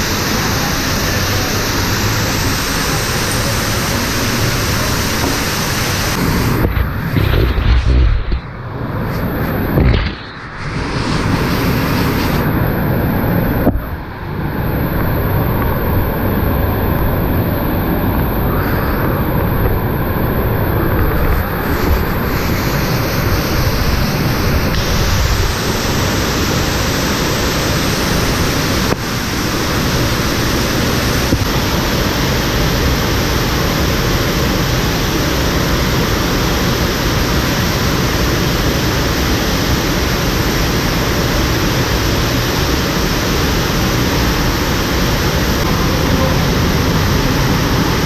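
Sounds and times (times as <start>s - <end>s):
floodwater rushing down shaft: 0.0s - 48.0s.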